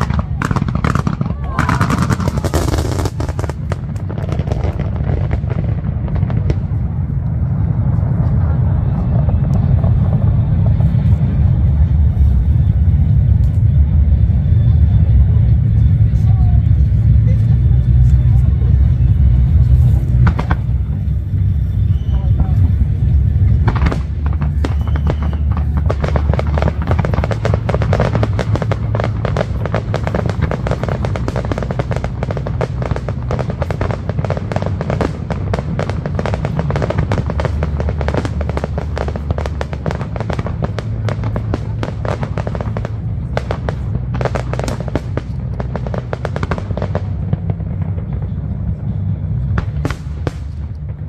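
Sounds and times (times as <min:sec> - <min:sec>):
fireworks bursting and crackling: 0:00.0 - 0:51.0
music playing: 0:12.1 - 0:35.8.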